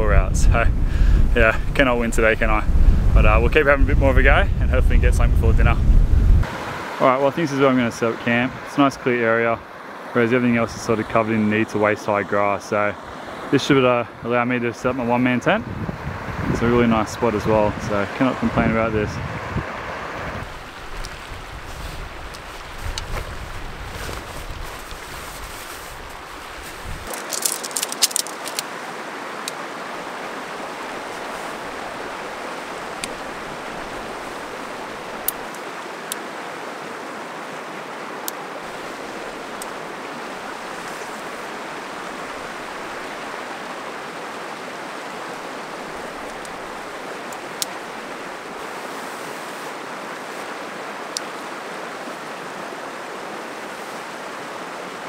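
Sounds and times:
river rapids rushing: 0:19.7 - 0:55.0
clicks and taps of camping gear: 0:22.3 - 0:23.3, 0:27.0 - 0:28.7, 0:35.2 - 0:36.2, 0:46.2 - 0:46.6, 0:47.2 - 0:47.8.

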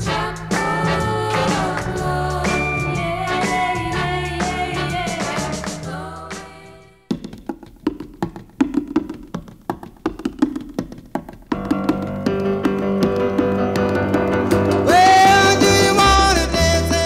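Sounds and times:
loud held melody line: 0:00.0 - 0:06.3, 0:13.2 - 0:17.0
band music: 0:00.0 - 0:06.7, 0:11.6 - 0:17.0.

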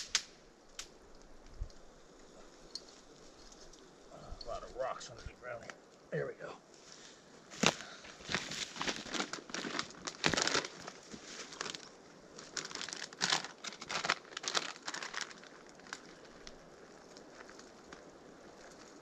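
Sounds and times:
dry leaves crunching underfoot: 0:06.8 - 0:19.0.

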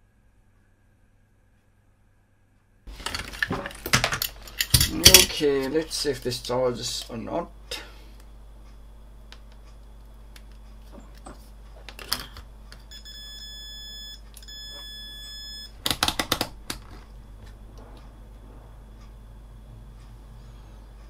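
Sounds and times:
long electronic beeps: 0:12.9 - 0:15.8.

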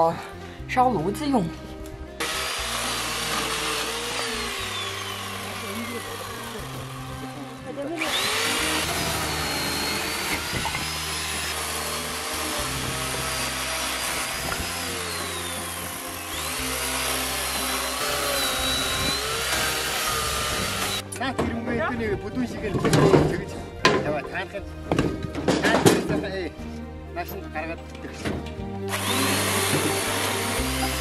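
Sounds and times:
background music: 0:00.0 - 0:31.0
electric chainsaw cutting wood: 0:02.2 - 0:21.1, 0:28.9 - 0:31.0.

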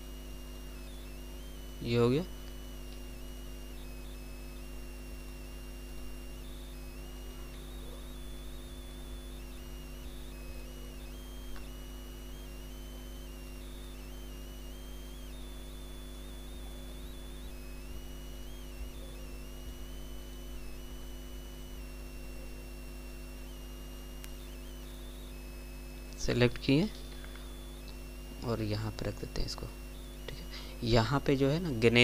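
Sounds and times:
faint high whining tones: 0:00.0 - 0:32.0
low electrical hum: 0:00.0 - 0:32.0
faint click: 0:11.5 - 0:11.7, 0:24.2 - 0:24.9.

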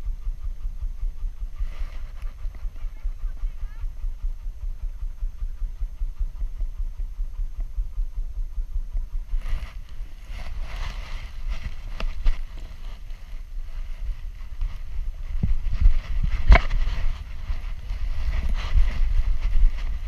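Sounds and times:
wind buffeting microphone: 0:00.0 - 0:20.0
scraping and clicks on rock: 0:14.4 - 0:20.0.

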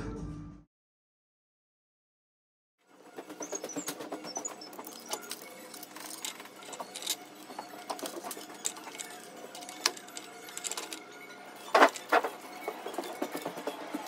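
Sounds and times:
roller chain clicking on sprockets: 0:03.0 - 0:14.0.

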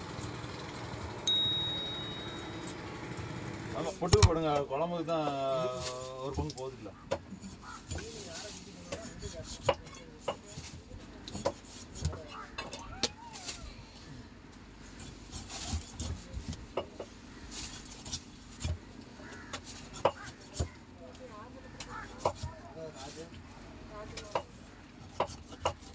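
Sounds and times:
knife chopping on wooden board: 0:04.2 - 0:04.4.

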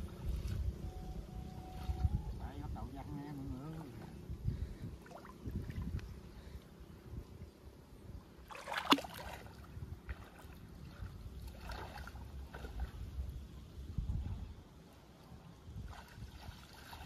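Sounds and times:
water splashing as person wades: 0:05.0 - 0:06.0, 0:08.4 - 0:13.2, 0:15.8 - 0:17.0.

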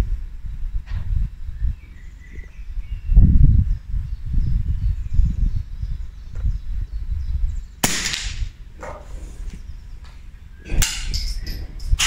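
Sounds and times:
rifle shot with echo: 0:07.8 - 0:08.6.

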